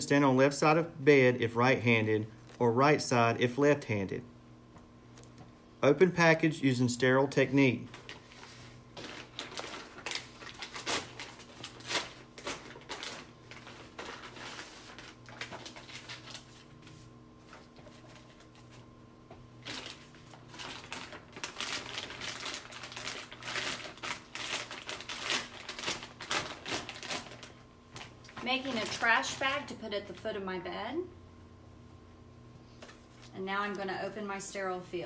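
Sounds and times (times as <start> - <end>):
plastic wrapping crinkling: 7.8 - 16.8, 19.6 - 29.7.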